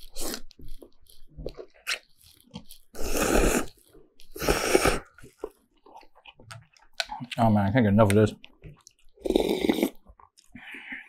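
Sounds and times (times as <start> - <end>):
person slurping noodles: 0.0 - 0.5, 2.9 - 5.3, 9.2 - 11.0
chewing and wet mouth sounds: 0.0 - 7.6, 8.4 - 11.0.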